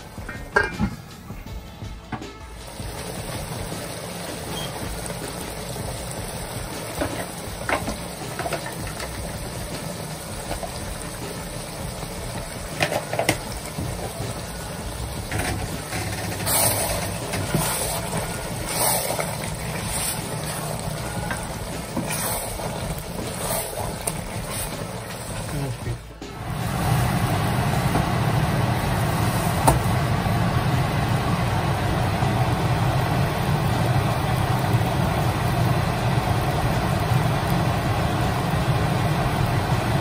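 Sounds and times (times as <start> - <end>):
wooden spoon knocking on pan: 0.2 - 1.1, 29.6 - 29.9
curry simmering in a pan: 2.6 - 40.0.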